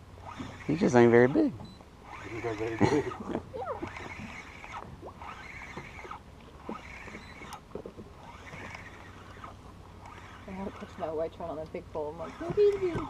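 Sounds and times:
fishing reel gears whirring: 0.0 - 13.0
low steady hum: 0.0 - 13.0
thin squeaks: 0.2 - 13.0.

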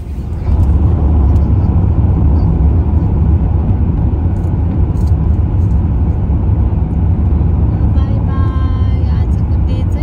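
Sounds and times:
car road and engine rumble: 0.0 - 10.0.

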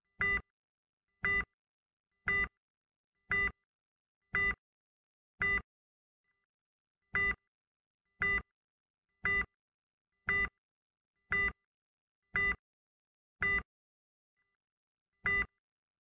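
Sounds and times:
heart monitor beeping: 15.3 - 15.6.

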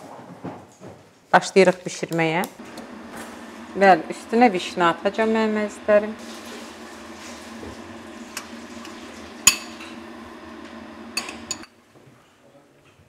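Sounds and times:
steady low hum: 2.6 - 11.8
metal spoon clinking china bowl: 9.5 - 9.8, 11.2 - 11.7.

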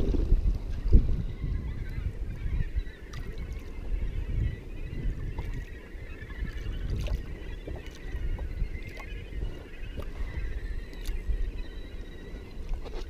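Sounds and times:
wind buffeting microphone: 0.0 - 13.0
water slapping against hull: 5.2 - 10.3.

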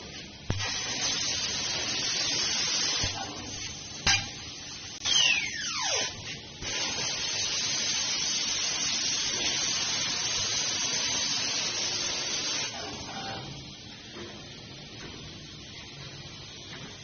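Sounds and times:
assist gas hissing from nozzle: 6.6 - 12.7.

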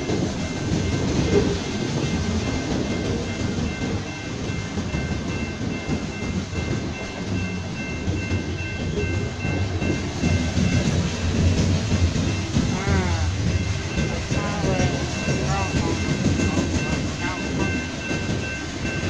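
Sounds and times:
train wheels rumbling and clattering: 0.0 - 19.0.

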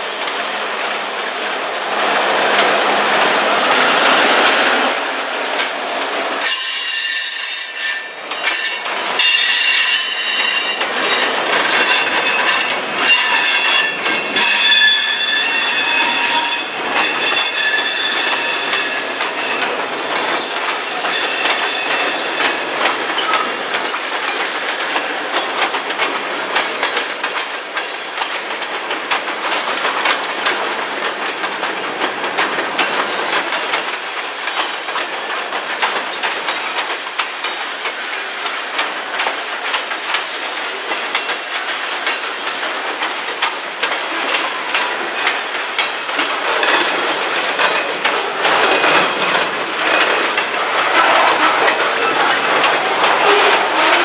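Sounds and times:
wheels clicking over rail joints: 0.0 - 54.0
train wheels squealing: 6.4 - 24.0.

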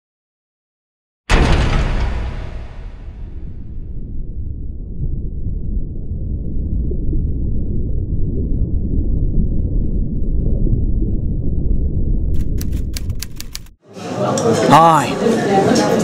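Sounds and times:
steady low rumbling: 1.3 - 13.8.

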